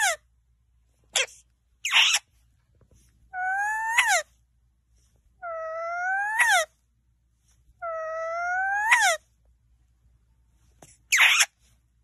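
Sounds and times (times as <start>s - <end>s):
parakeet whining calls: 0.0s - 0.2s, 1.2s - 2.3s, 3.3s - 4.3s, 5.4s - 6.7s, 7.8s - 9.2s, 11.1s - 11.6s
parakeet squawk: 0.0s - 0.3s, 1.1s - 2.3s, 3.3s - 4.3s, 5.4s - 6.7s, 7.8s - 9.2s, 11.1s - 11.6s.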